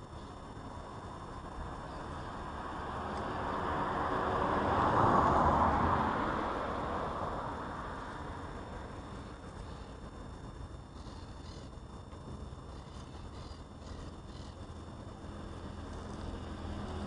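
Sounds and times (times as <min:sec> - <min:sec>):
vehicle driving past: 0:02.2 - 0:09.9, 0:15.1 - 0:17.0.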